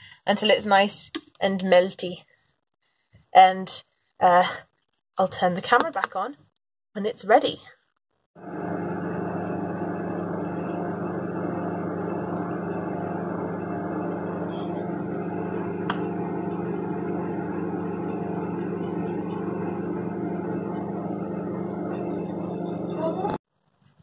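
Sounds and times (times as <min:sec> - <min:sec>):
microwave oven humming: 0:08.4 - 0:23.4.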